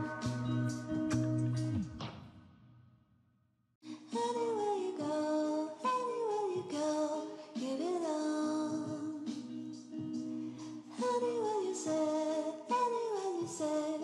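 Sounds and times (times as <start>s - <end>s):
sung melody sliding in pitch: 0.0s - 1.8s
background music: 0.0s - 2.3s.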